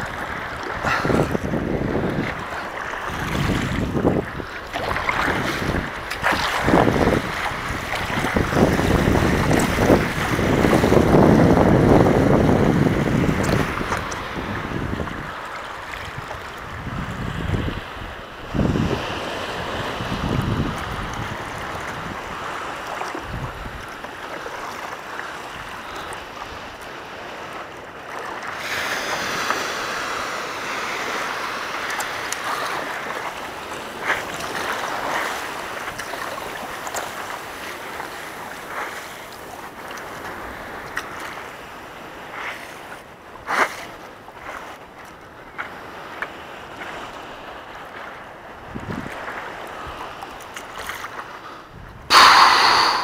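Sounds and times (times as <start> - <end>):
wind on microphone: 0.0 - 24.0, 48.5 - 50.8, 51.6 - 53.0
water rushing under a board: 0.0 - 53.0
short splashes: 2.1 - 11.0.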